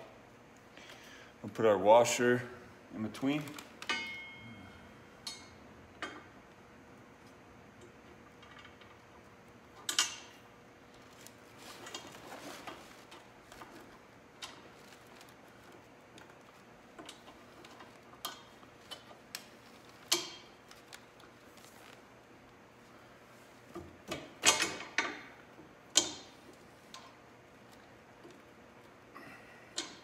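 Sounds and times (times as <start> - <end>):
soft rustle: 18.6 - 23.7.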